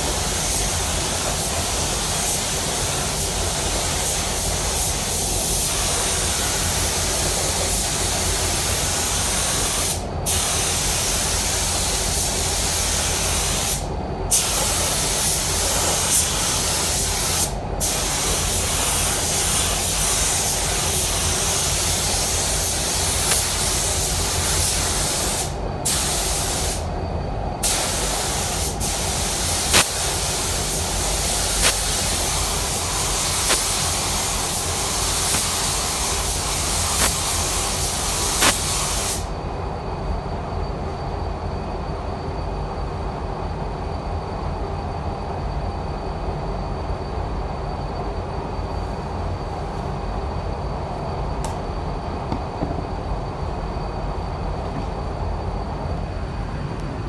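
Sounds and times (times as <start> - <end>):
paint spray gun hissing: 0.0 - 26.8, 27.6 - 39.3.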